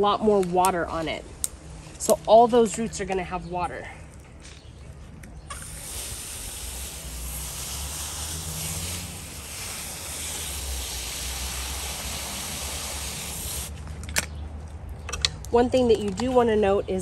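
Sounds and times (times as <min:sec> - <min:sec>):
water jetting from hose: 0:05.5 - 0:13.7.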